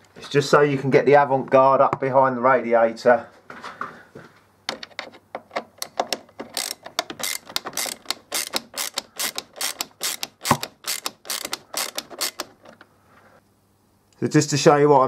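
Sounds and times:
ratcheting driver clicking: 4.7 - 12.8.

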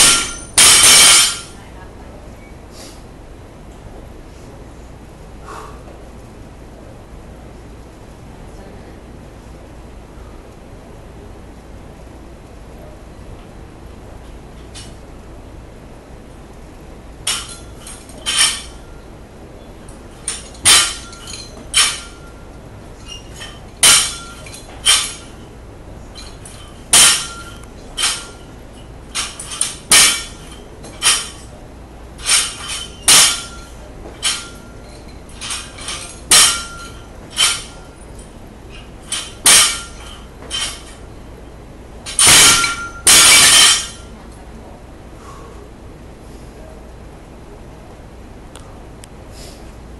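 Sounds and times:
barbell plates clanking: 0.0 - 1.5, 17.3 - 18.9, 20.1 - 25.4, 26.2 - 31.6, 32.2 - 41.0, 42.1 - 44.1
barbell clattering down: 0.0 - 1.6, 17.3 - 18.9, 20.1 - 25.4, 26.2 - 31.6, 32.2 - 41.1, 42.1 - 44.1.

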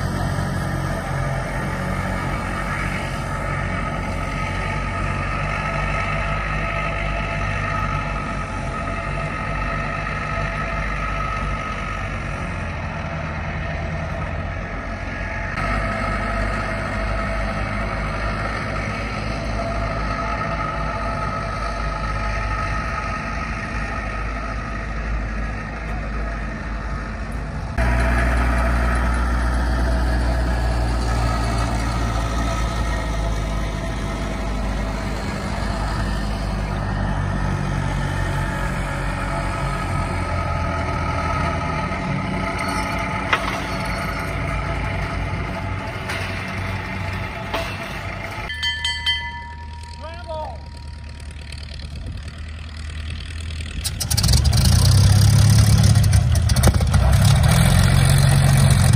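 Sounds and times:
aircraft tug engine running: 0.0 - 58.9.

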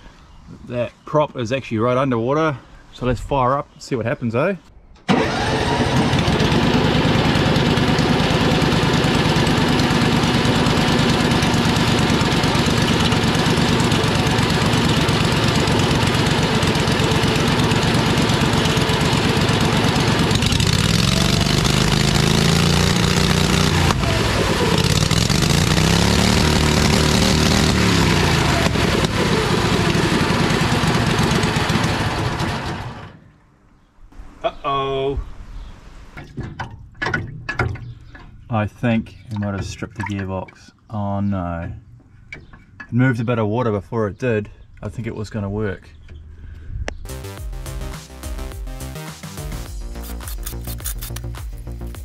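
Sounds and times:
engine starting and revving: 5.1 - 33.2
propeller churning water: 5.4 - 31.7.

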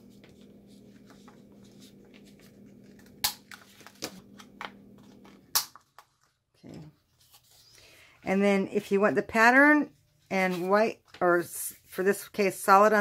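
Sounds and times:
faint steady hum: 0.0 - 10.3
paper handling clicks: 1.0 - 6.3.

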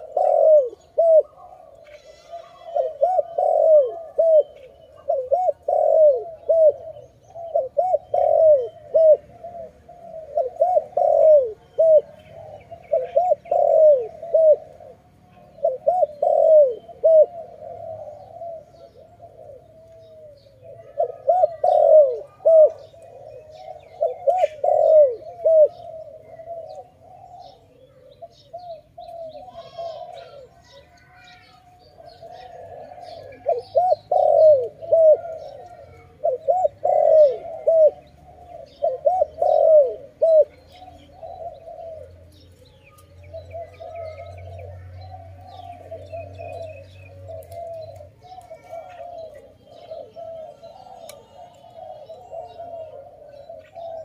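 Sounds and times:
dove cooing: 0.0 - 54.0.

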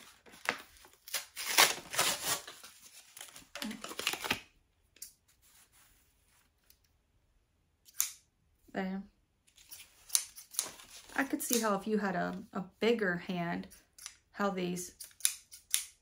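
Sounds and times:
plastic packaging crinkling: 0.0 - 4.5.

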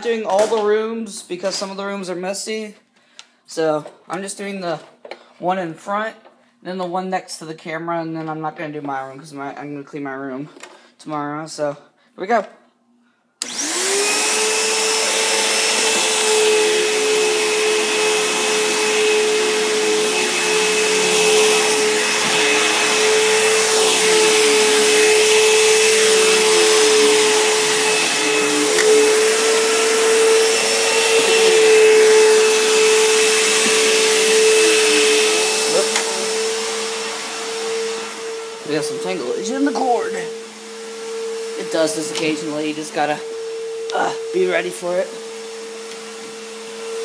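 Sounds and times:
upright vacuum on carpet: 13.4 - 47.0.

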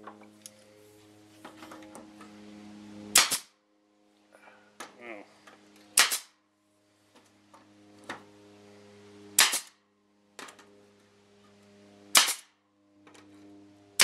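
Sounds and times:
pneumatic stapler shots: 3.1 - 3.5, 6.0 - 6.3, 9.4 - 9.8, 12.1 - 12.5.

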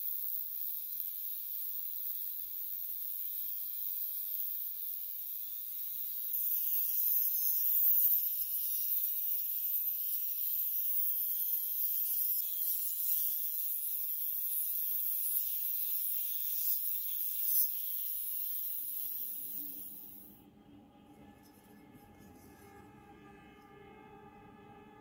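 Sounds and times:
rotary tool sanding metal: 0.0 - 20.4
low droning tone: 19.3 - 25.0.

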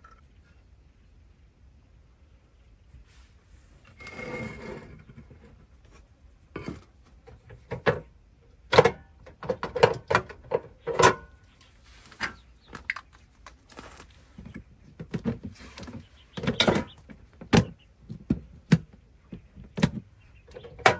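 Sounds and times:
rustle: 2.0 - 8.0, 10.8 - 17.5.

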